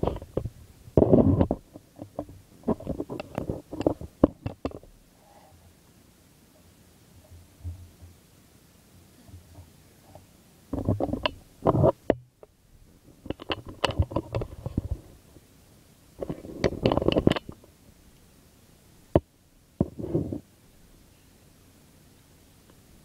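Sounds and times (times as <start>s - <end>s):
phone handling rubbing and knocking: 10.8s - 12.1s, 16.2s - 17.6s, 19.8s - 20.4s.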